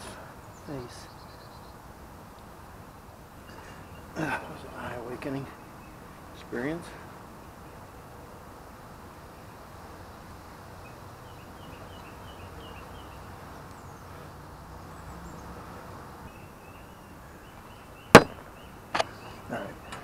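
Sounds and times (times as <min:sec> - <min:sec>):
sharp handling knocks: 0:18.2 - 0:18.4.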